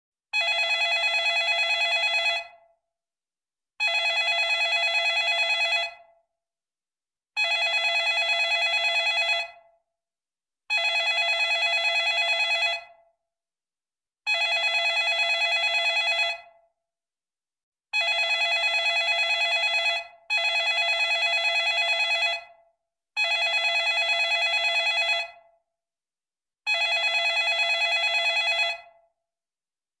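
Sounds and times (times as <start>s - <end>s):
telephone bell ringing: 0.4s - 2.6s, 3.8s - 6.1s, 7.4s - 9.7s, 10.7s - 13.0s, 14.3s - 16.6s, 18.0s - 22.6s, 23.2s - 25.5s, 26.7s - 29.0s.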